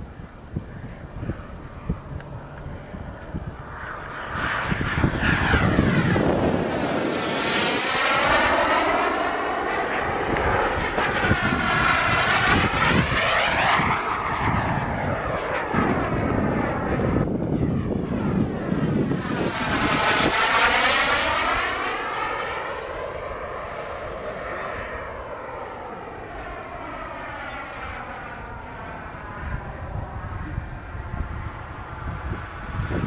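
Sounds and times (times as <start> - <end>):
model airplane engine passing: 0.0 - 33.0.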